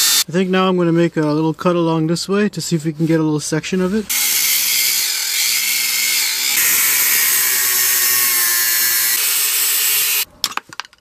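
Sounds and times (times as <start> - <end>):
angle grinder cutting metal: 0.0 - 0.2, 4.1 - 10.3.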